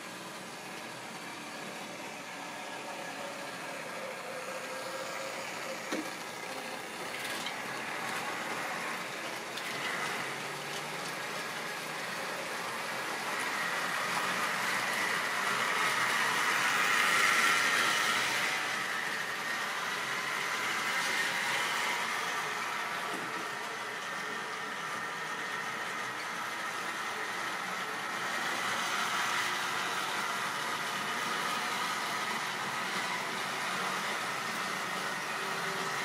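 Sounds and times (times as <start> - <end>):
model train motor whirring: 0.0 - 36.0
wheels rolling along track: 0.0 - 36.0.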